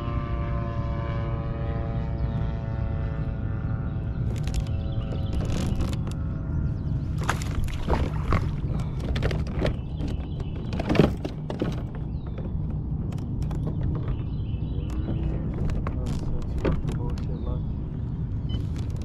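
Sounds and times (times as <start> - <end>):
wind rumbling on microphone: 0.0 - 19.0
water splashes: 7.1 - 11.9
knocks and clicks: 7.2 - 17.4.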